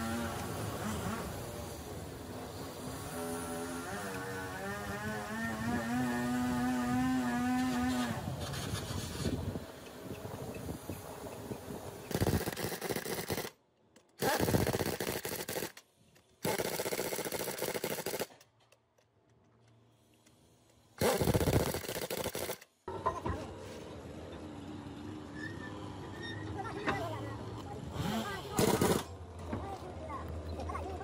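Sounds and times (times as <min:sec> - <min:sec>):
pneumatic impact wrench hammering: 0:11.6 - 0:18.7, 0:20.1 - 0:22.8, 0:28.0 - 0:29.1.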